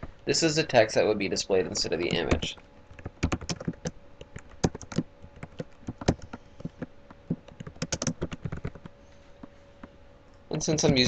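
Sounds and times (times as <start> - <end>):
computer keyboard typing: 1.7 - 8.9.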